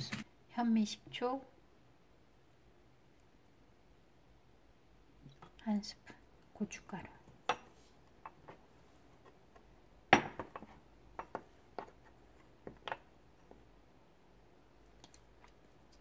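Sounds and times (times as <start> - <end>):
wooden spoon stirring in ceramic bowl: 10.5 - 13.7.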